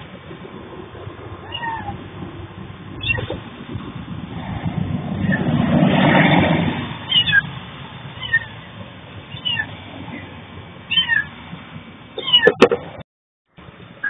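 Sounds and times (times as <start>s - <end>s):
cat meowing: 1.4s - 2.0s, 3.0s - 3.4s, 7.1s - 7.4s, 8.2s - 8.6s, 9.3s - 9.7s, 10.9s - 11.3s, 12.2s - 12.7s.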